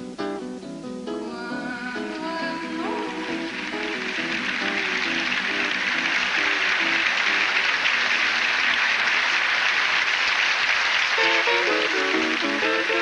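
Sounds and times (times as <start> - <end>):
acoustic guitar notes: 0.0 - 7.8, 11.2 - 13.0
audience applauding and cheering: 2.7 - 13.0.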